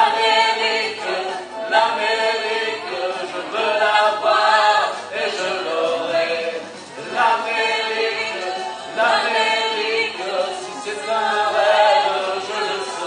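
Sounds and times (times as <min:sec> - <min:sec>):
amplified harmony singing: 0:00.0 - 0:13.0.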